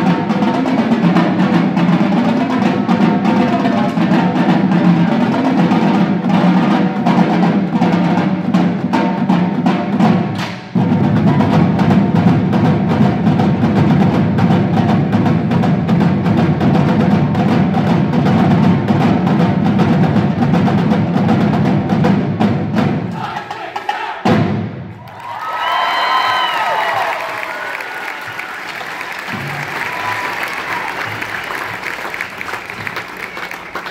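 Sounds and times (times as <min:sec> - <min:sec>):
marching drumline: 0:00.0 - 0:33.9.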